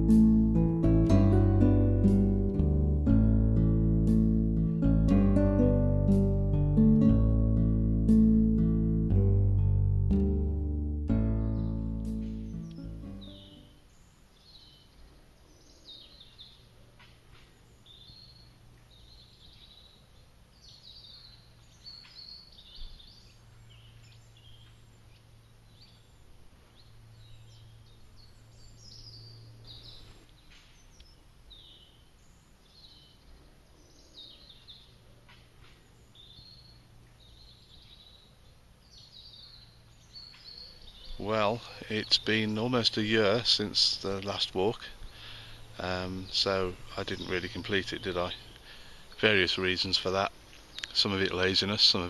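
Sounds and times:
low steady hum: 0:00.0 - 0:14.2, 0:34.7 - 0:52.0
small birds chirping: 0:11.4 - 0:52.0.

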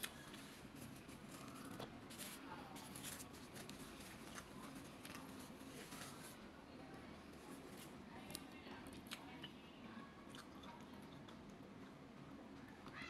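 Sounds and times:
paper napkin rustling: 0:00.0 - 0:06.4.

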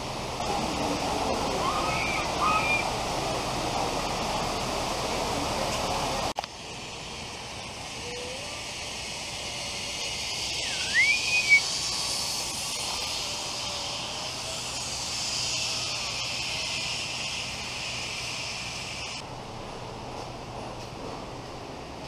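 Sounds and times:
steady high hiss: 0:00.0 - 0:22.0
short whistle: 0:10.6 - 0:11.6.

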